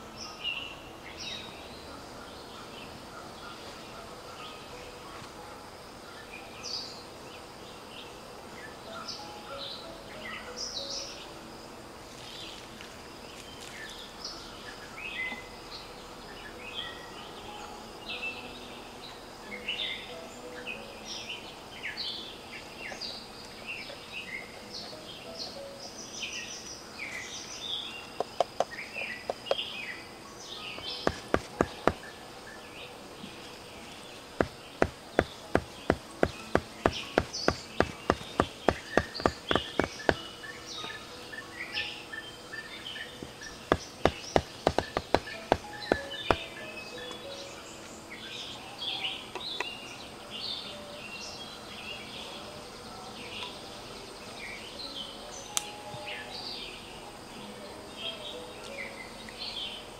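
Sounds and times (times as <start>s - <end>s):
birds chirping: 0.0s - 59.9s
knife chopping on wooden board: 31.0s - 32.1s, 34.4s - 40.2s, 43.7s - 46.4s.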